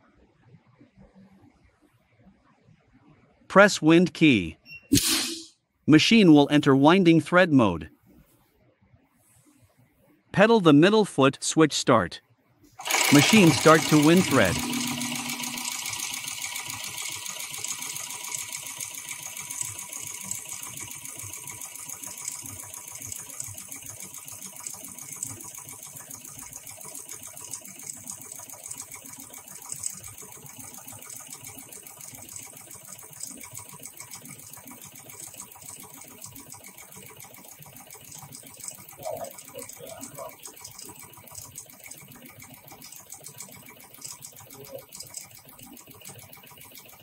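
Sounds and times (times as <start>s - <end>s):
sewing machine bobbin winder whirring: 12.8s - 47.0s.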